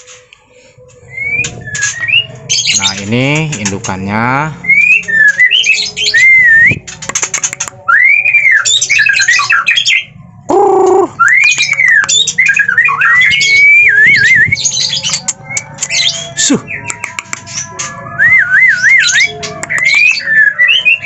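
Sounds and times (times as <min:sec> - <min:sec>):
bird singing whistles and chatter: 0:00.9 - 0:21.0.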